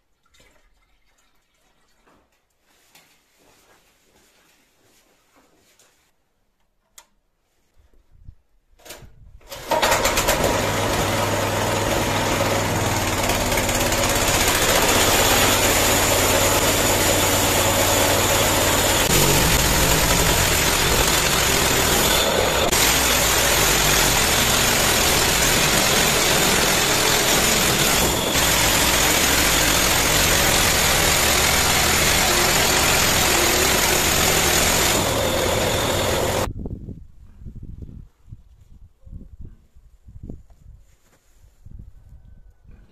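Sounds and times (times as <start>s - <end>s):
engine pull-start cord: 8.9s - 36.5s
small petrol engine running: 9.6s - 36.5s
band saw blade cutting log: 9.7s - 36.5s.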